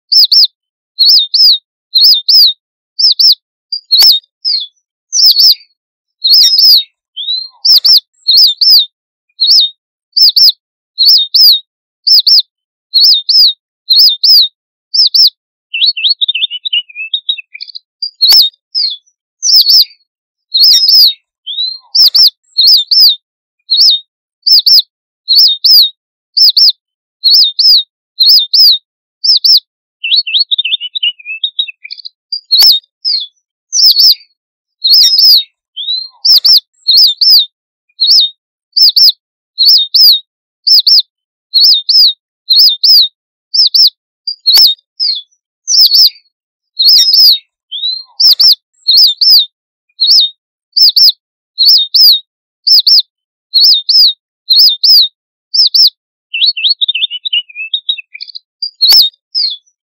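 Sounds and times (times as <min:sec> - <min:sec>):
finch twittering: 0:00.1 - 0:05.6, 0:06.2 - 0:08.8, 0:09.4 - 0:12.4, 0:13.0 - 0:23.1, 0:23.7 - 0:26.7, 0:27.3 - 0:34.2, 0:34.9 - 0:37.4, 0:38.0 - 0:41.0, 0:41.6 - 0:46.2, 0:46.8 - 0:49.4, 0:50.0 - 0:52.1, 0:52.7 - 0:53.0, 0:53.6 - 0:55.0, 0:55.6 - 0:59.6
finch contact calls: 0:00.1 - 0:05.7, 0:06.3 - 0:12.4, 0:13.0 - 0:26.7, 0:27.3 - 0:32.9, 0:33.7 - 0:34.2, 0:34.9 - 0:37.4, 0:38.0 - 0:40.1, 0:43.6 - 0:46.2, 0:46.8 - 0:49.4, 0:50.0 - 0:52.1, 0:55.6 - 0:59.7.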